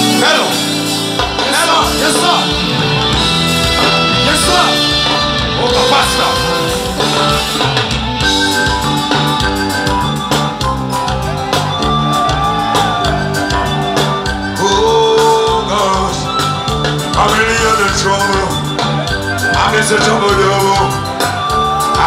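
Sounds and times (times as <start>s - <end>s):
loud live music with beat: 0.0s - 22.0s
person singing: 4.1s - 7.6s, 14.5s - 22.0s.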